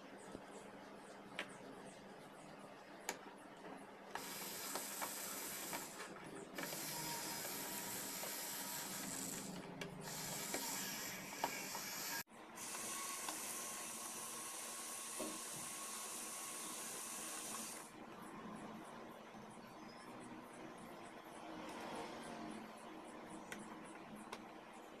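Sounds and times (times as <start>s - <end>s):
small electric motor whirring: 4.1s - 17.9s.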